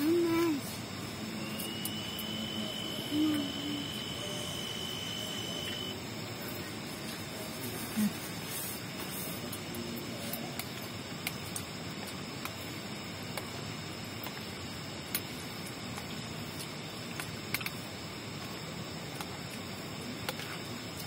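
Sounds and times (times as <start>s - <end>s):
faint high insect drone: 0.0s - 21.0s
rain hissing on tent: 0.0s - 21.0s.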